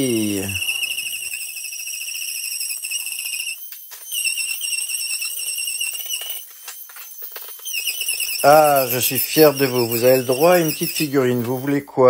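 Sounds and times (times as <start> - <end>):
multi-tool high-pitched whine: 0.0 - 11.9
blade scraping plasterboard: 0.1 - 11.8.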